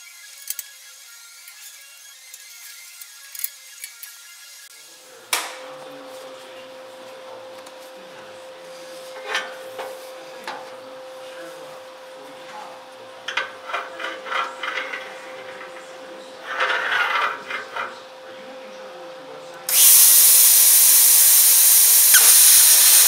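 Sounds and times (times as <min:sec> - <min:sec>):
steady hum: 0:19.7 - 0:23.0.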